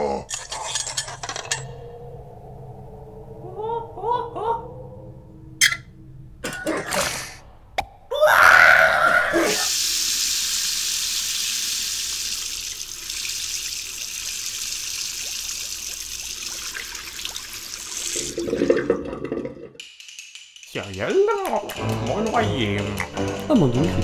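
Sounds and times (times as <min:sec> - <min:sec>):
water rushing down sink drain: 0:09.6 - 0:19.8.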